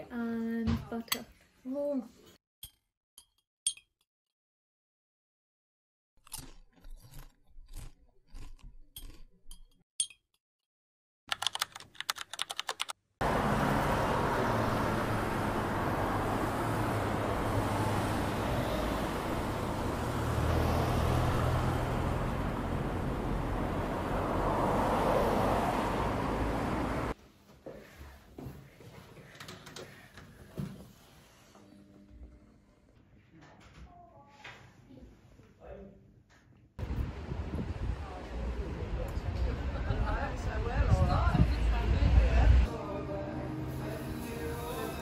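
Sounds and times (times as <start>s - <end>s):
sharp clicks and crunches: 6.2s - 9.7s
car engine and road noise: 13.2s - 27.2s.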